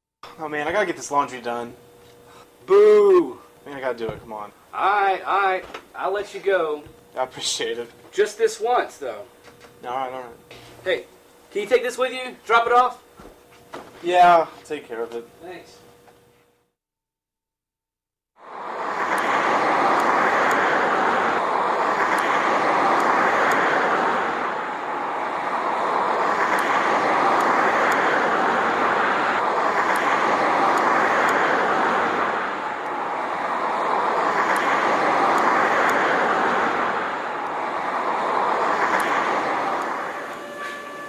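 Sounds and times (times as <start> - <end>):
washing machines churning: 18.4 - 41.0.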